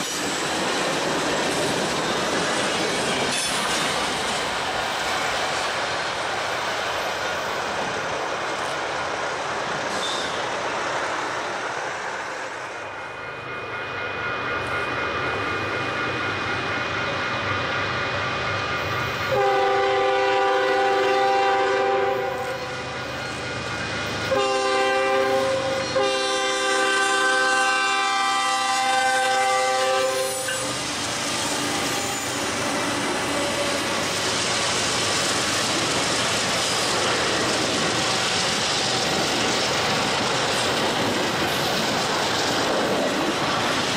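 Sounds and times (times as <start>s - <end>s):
train wheels rumbling and clacking: 0.0s - 43.9s
locomotive air horn: 19.3s - 22.8s, 24.3s - 30.8s.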